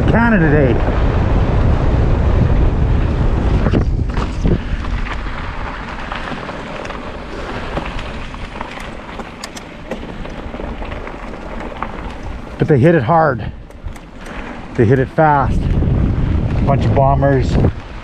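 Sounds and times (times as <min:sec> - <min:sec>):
bike rolling on dirt: 0:00.0 - 0:18.0
wind buffeting microphone: 0:00.0 - 0:18.0
bike clicks and rattles: 0:03.0 - 0:16.7.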